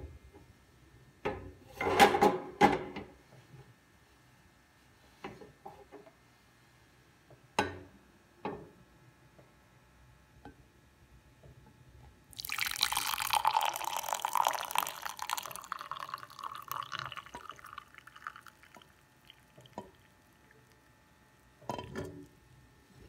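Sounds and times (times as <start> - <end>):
tea pouring into mug: 12.3 - 20.8
liquid dripping: 12.4 - 20.8.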